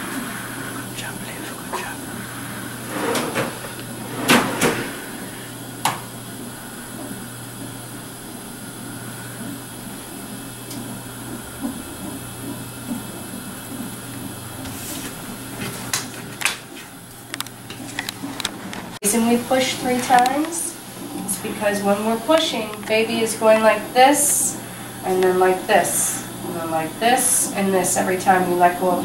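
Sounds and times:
low hum: 0:00.0 - 0:15.5.

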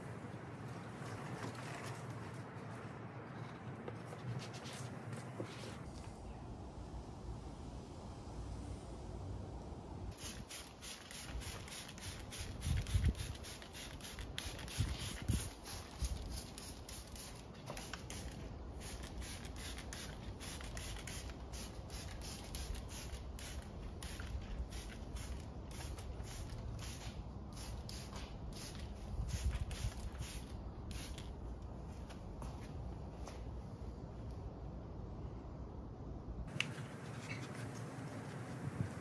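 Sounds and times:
spray bottle spritzing: 0:10.2 - 0:31.3.

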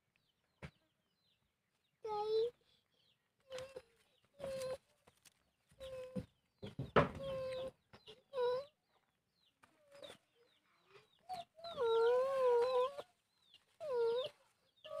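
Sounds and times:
chickens calling: 0:03.5 - 0:15.0.

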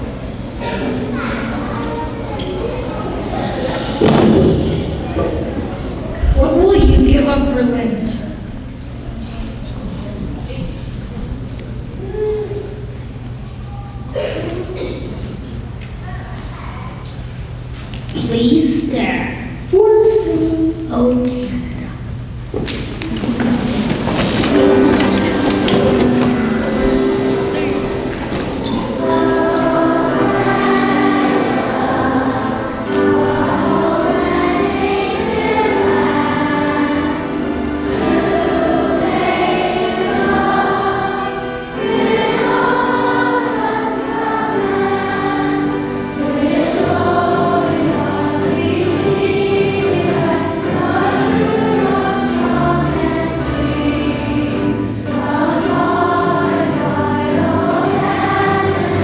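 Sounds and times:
choir singing: 0:00.0 - 0:06.8, 0:23.1 - 0:59.0
instrumental accompaniment: 0:23.3 - 0:59.0.

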